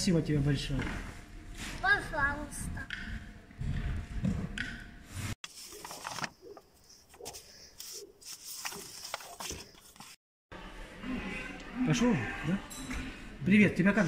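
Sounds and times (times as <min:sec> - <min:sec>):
paper rustling and crackling: 0:05.4 - 0:10.2.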